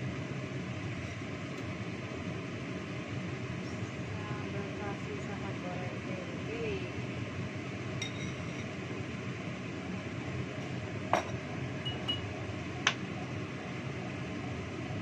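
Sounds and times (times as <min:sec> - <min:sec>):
kitchenware clinking: 0:08.0 - 0:08.7, 0:11.1 - 0:12.3.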